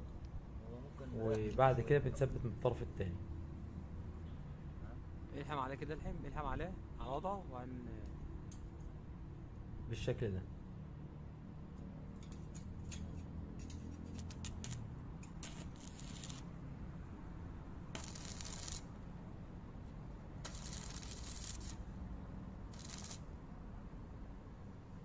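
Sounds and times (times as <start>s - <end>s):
arc welding crackle: 13.6s - 16.5s, 17.9s - 19.0s, 20.4s - 21.9s, 22.7s - 23.3s
hissing welding arc bursts: 14.2s - 16.4s, 18.0s - 18.9s, 20.4s - 21.9s, 22.7s - 23.3s.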